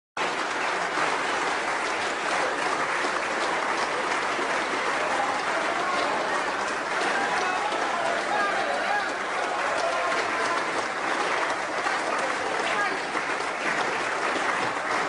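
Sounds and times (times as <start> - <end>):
crowd clapping: 0.2 - 15.0.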